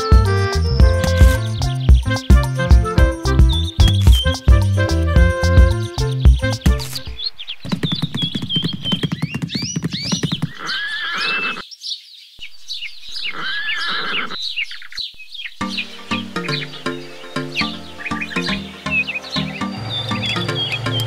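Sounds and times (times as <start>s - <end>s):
hooves clip-clopping: 7.6s - 10.7s.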